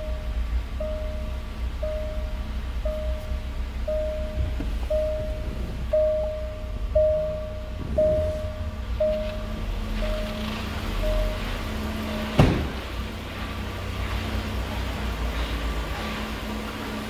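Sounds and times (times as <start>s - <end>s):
car warning chime: 0.0s - 13.0s
low rumble: 0.0s - 16.1s.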